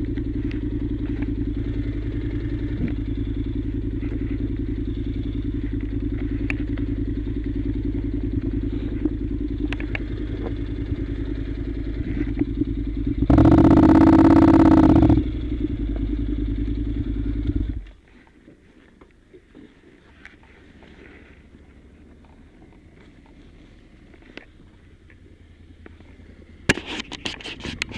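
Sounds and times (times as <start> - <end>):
motorcycle engine running: 0.0 - 27.9
loud even-pitched sound: 13.3 - 15.5.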